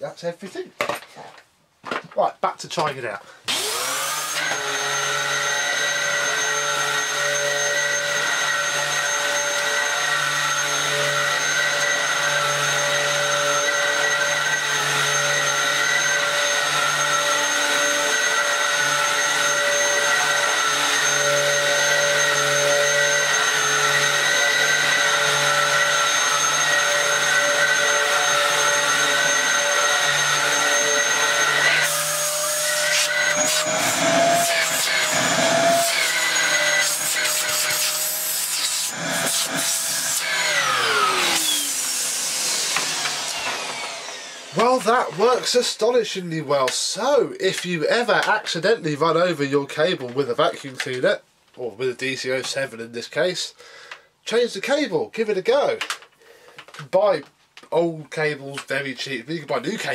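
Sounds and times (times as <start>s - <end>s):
vacuum cleaner running: 3.5s - 46.0s.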